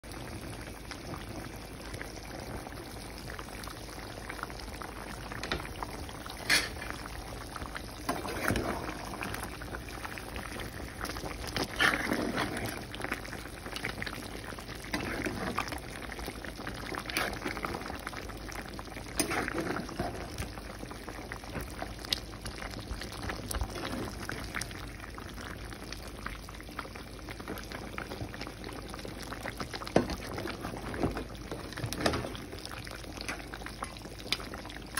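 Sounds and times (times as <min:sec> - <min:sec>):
curry bubbling in a pan: 0:00.0 - 0:34.9
spatula stirring and scraping: 0:08.0 - 0:18.2, 0:18.9 - 0:20.5, 0:23.3 - 0:24.5.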